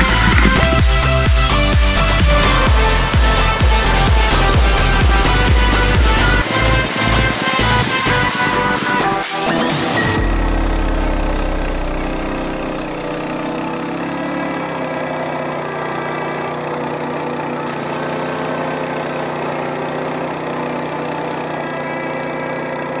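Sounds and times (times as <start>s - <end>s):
deep rumble: 0.0s - 8.8s
winch engine running: 0.0s - 23.0s.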